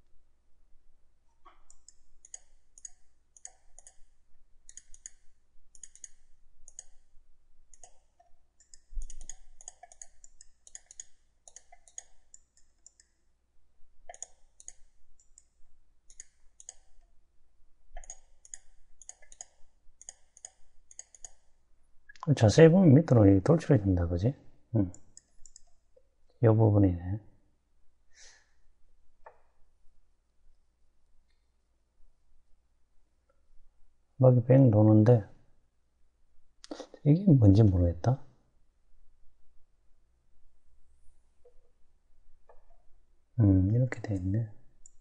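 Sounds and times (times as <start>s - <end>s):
computer mouse clicking: 1.5s - 7.1s, 7.7s - 13.2s, 14.0s - 15.5s, 16.1s - 17.1s, 17.9s - 21.5s, 24.9s - 25.8s.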